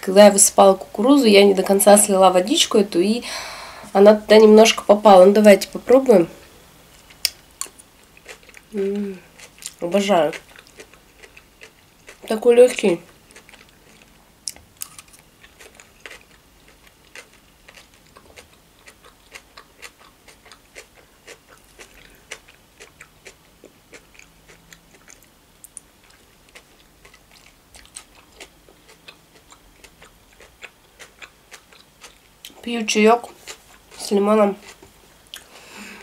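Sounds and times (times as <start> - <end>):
person chewing food: 7.0 - 12.3, 13.0 - 32.6, 33.3 - 34.0, 34.6 - 36.0.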